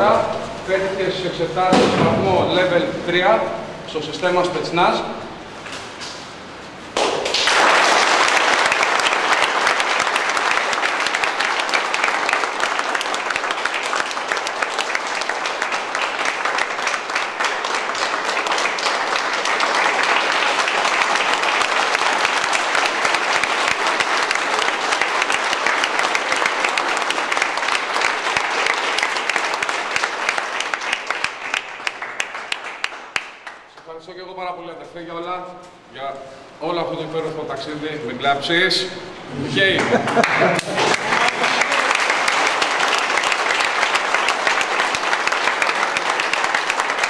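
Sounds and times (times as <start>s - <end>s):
crowd applauding: 7.0s - 33.8s, 39.6s - 47.0s.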